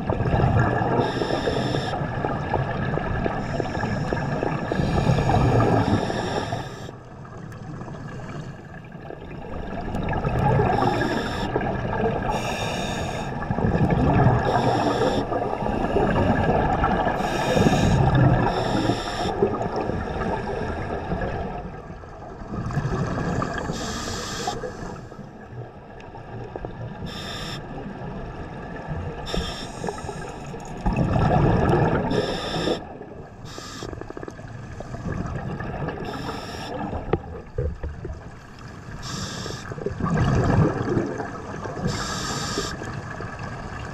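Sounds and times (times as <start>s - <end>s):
diver hissing inhalations: 12.3s - 13.3s, 17.2s - 19.4s, 23.7s - 25.1s, 29.3s - 30.4s, 32.1s - 32.8s, 33.4s - 34.0s, 39.0s - 39.7s, 41.9s - 42.8s
bubbling exhalations: 30.8s - 32.9s, 39.8s - 42.1s.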